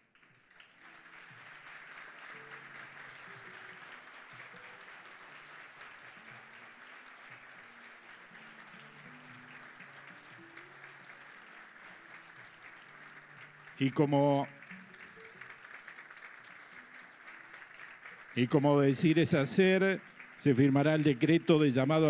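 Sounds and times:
audience applauding: 0.0 - 22.0
soft background music: 0.5 - 22.0.

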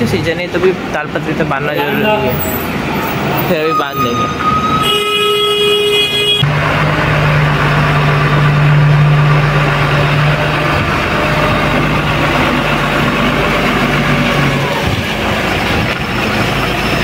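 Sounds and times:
diesel truck engine low revs: 6.4 - 17.0.

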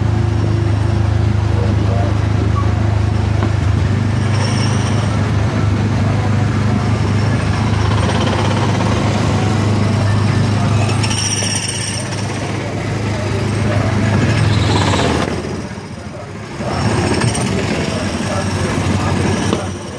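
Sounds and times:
small gasoline engine running: 0.0 - 19.9.

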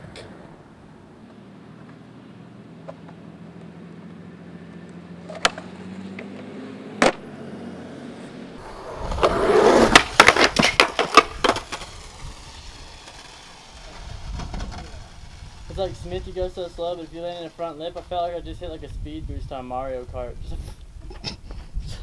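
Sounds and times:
skateboard rolling on concrete: 0.0 - 19.2
skateboard scraping and clattering: 5.2 - 6.4, 8.6 - 18.1
skateboard clacks: 5.3 - 6.3, 7.0 - 7.2, 8.6 - 15.6.

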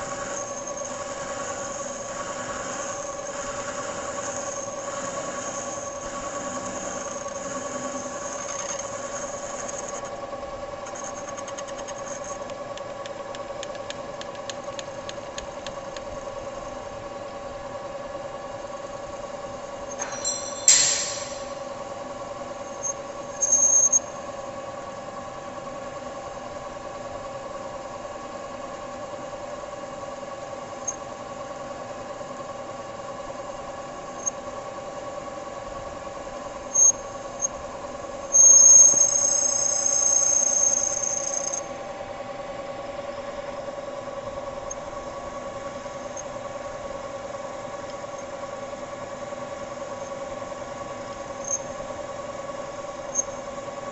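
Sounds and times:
metal lathe humming: 0.0 - 10.2
cutting tool squealing: 19.9 - 21.6.

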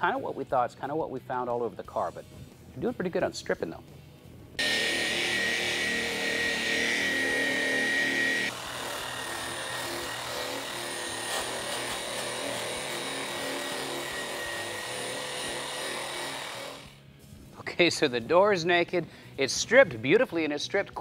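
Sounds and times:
high whine: 4.6 - 8.5
angle grinder grinding metal: 4.6 - 17.0.

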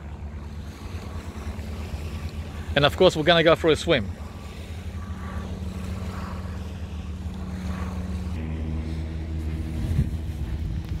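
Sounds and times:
engine drone: 0.0 - 11.0
low wind rumble: 0.0 - 11.0.

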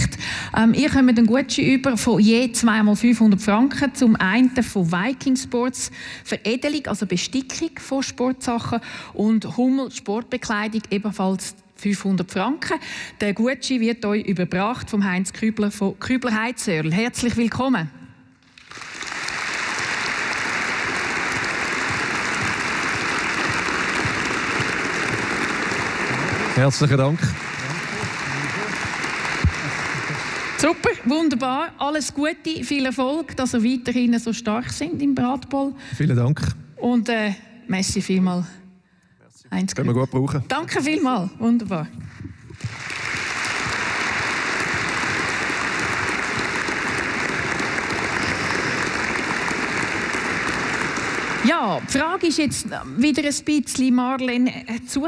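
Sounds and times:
audience applauding: 18.4 - 31.1, 42.6 - 52.6.

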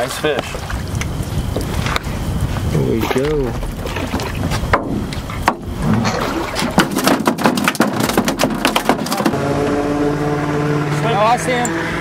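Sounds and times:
motor hum: 0.0 - 12.0
knocks and taps on metal boat: 4.7 - 5.7, 6.7 - 9.4.

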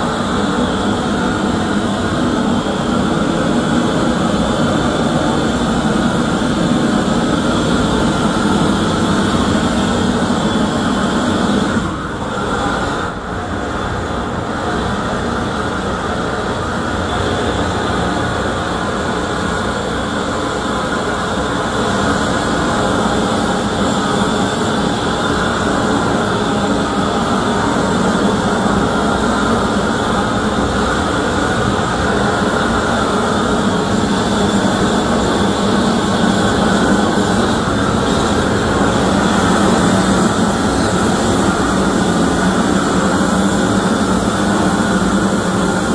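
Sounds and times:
propane torch hissing: 19.5 - 45.9.

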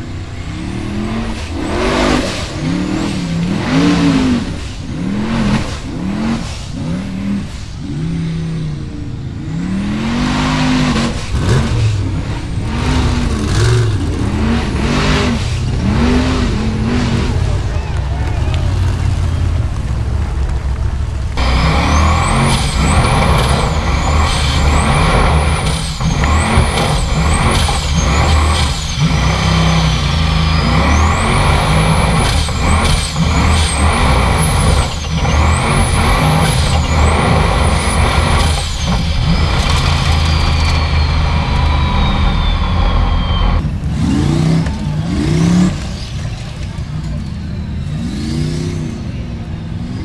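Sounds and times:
buggy engine revving: 0.0 - 50.0
high engine whine: 0.0 - 50.0.

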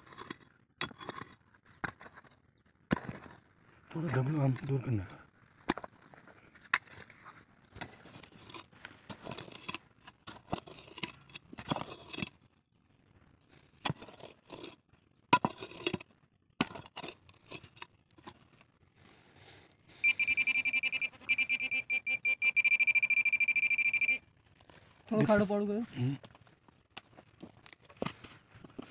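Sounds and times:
pick chopping stony soil: 0.0 - 3.4
high-pitched pulsing beep: 20.0 - 24.2.

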